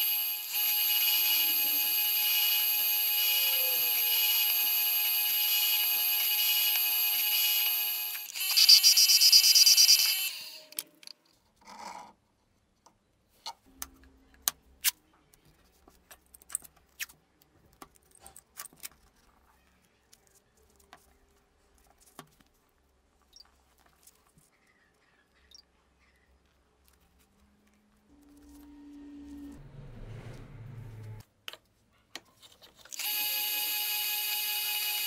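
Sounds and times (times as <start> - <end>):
electric drill running: 0.0 - 10.7, 33.0 - 35.0.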